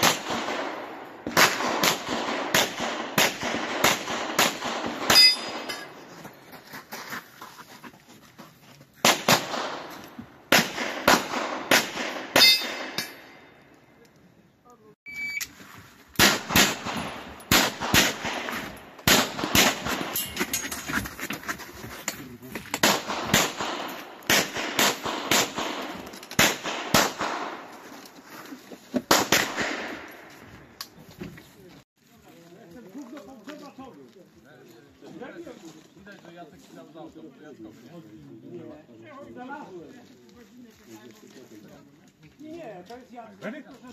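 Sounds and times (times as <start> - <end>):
rapid pistol shots: 0.0 - 5.7, 9.0 - 13.4, 16.2 - 20.2, 22.8 - 27.6, 29.1 - 30.0.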